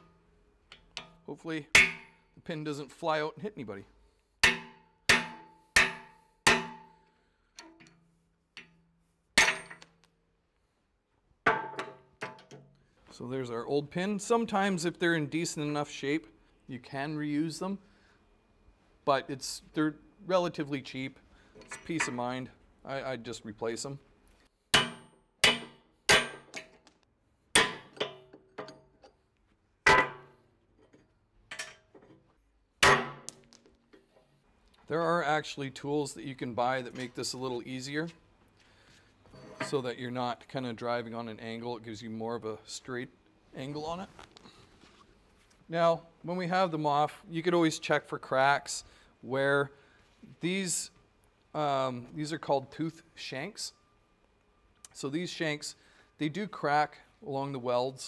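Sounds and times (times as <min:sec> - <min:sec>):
hammer striking steel punch: 0:01.0 - 0:02.3, 0:04.4 - 0:07.0, 0:24.8 - 0:26.8, 0:27.6 - 0:28.2, 0:32.8 - 0:33.4.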